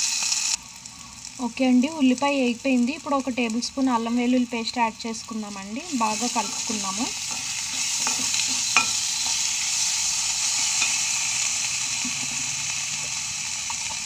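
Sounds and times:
food sizzling in hot oil: 0.0 - 14.0
spatula scraping and tapping pan: 7.3 - 9.5.

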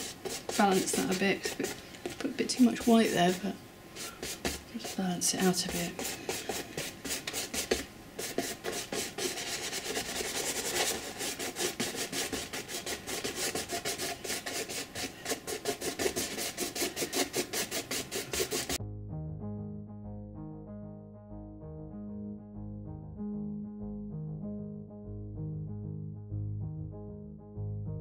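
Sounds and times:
paintbrush scratching on canvas: 0.0 - 18.8.

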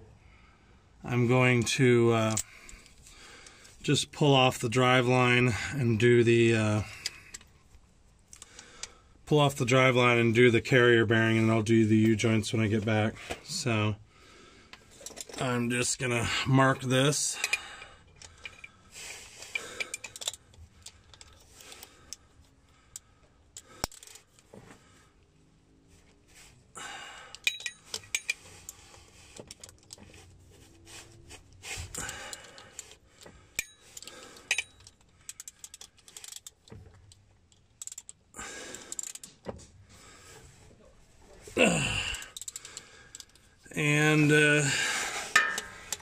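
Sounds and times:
metallic clinks of socket and bolts: 2.2 - 3.1, 14.8 - 15.5, 17.4 - 18.8, 19.4 - 22.2, 22.9 - 24.4, 27.3 - 28.8, 32.3 - 39.5, 42.2 - 43.5, 45.3 - 46.0
ratchet clicking: 32.4 - 38.2, 38.8 - 39.3, 42.3 - 43.4.

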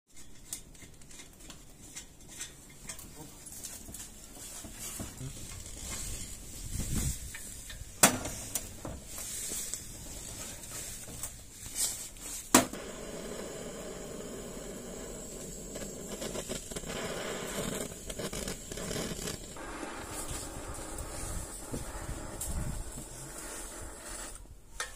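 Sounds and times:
gas torch hissing: 12.5 - 24.6.

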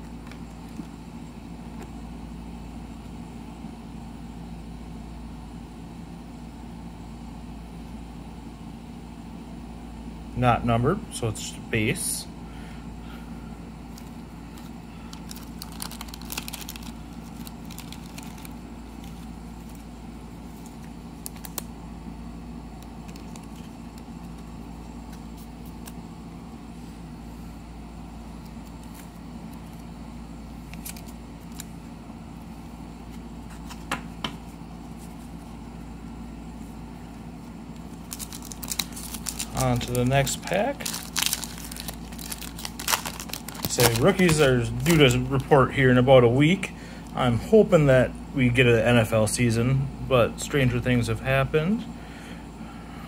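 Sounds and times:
low room hum: 0.0 - 53.0
cards clicking and rustling: 13.9 - 19.9, 20.5 - 21.7, 22.8 - 26.0, 28.4 - 29.9, 30.6 - 31.8, 33.1 - 35.2, 37.8 - 45.6.

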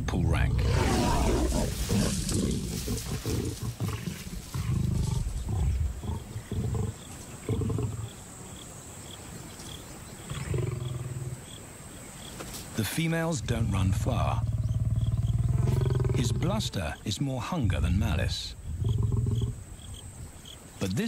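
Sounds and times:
lions growling: 0.4 - 8.2, 10.2 - 11.4, 13.5 - 17.0, 18.6 - 19.6.

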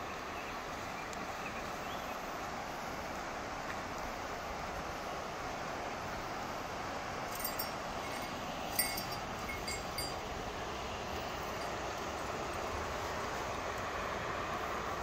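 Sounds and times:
steady rushing noise: 4.0 - 15.0
high metallic tinkles: 7.3 - 10.4, 11.3 - 11.9.

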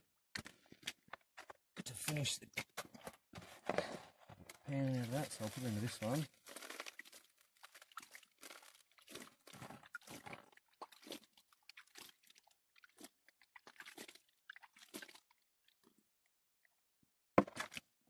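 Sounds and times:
wet sand and gravel scraping: 4.7 - 10.4.

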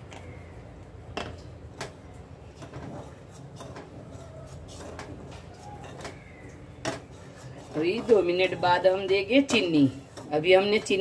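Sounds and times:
spoon scraping a saucepan: 2.5 - 11.0.

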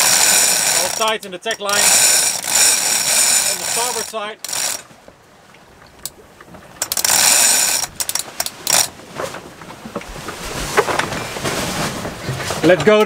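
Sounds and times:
winch ratchet clicking: 0.0 - 4.9, 6.8 - 8.9.

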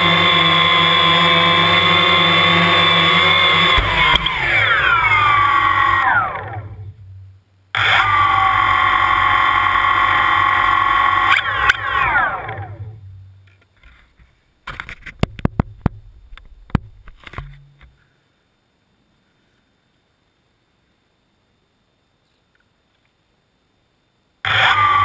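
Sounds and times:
drone propeller motors whining: 0.0 - 13.3, 24.5 - 25.0
sharp clicks and knocks: 3.6 - 4.6, 13.4 - 18.0.

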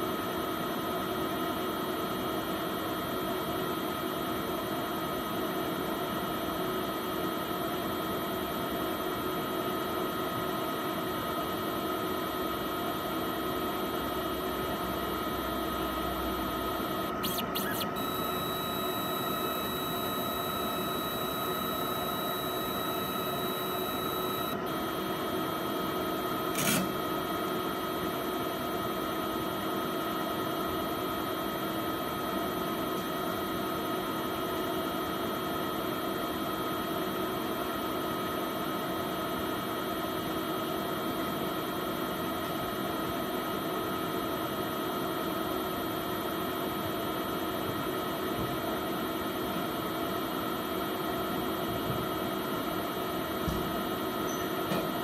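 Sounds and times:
machine humming and whining: 10.1 - 34.5.

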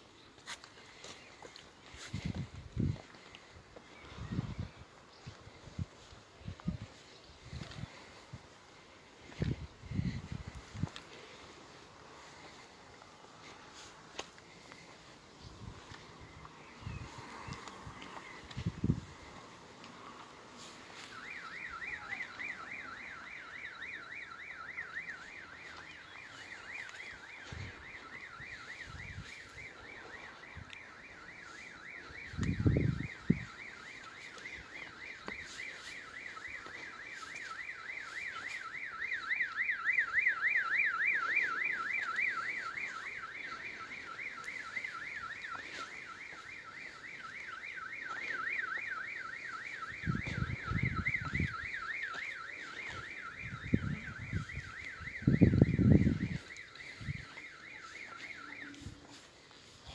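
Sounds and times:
electronic alarm warbling: 21.2 - 59.0.

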